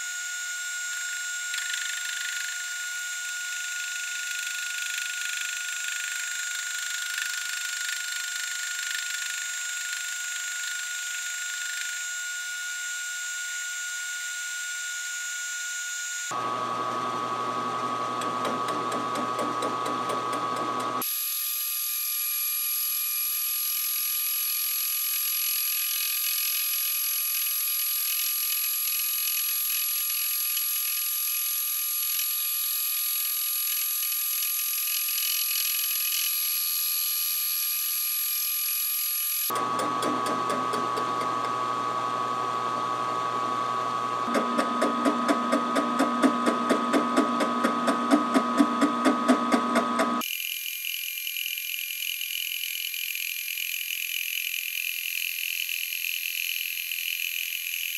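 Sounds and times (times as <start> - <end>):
milling machine cutting metal: 16.3 - 21.2, 39.5 - 57.9
steady machine whine: 38.6 - 57.9
rhythmic tapping: 44.3 - 50.2.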